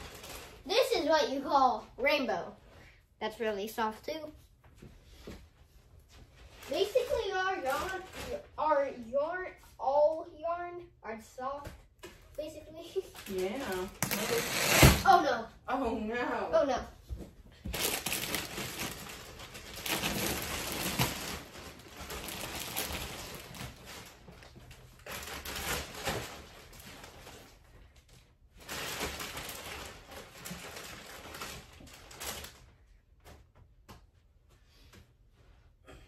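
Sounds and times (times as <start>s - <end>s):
plastic bag crinkling and rustling: 0.0s - 1.2s, 6.2s - 8.6s, 12.8s - 15.1s, 17.7s - 32.8s.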